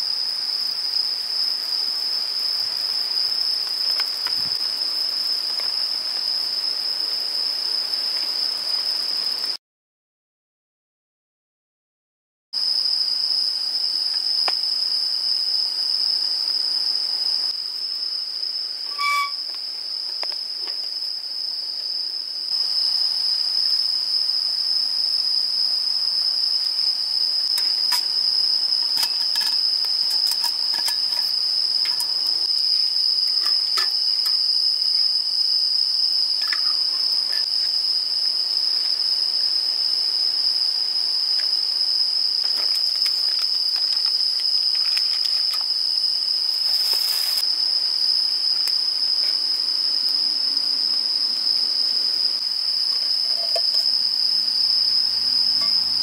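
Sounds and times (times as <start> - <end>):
insects chirring: 0.0 - 9.6, 12.6 - 56.0
cookware clicking and clinking: 28.8 - 31.3.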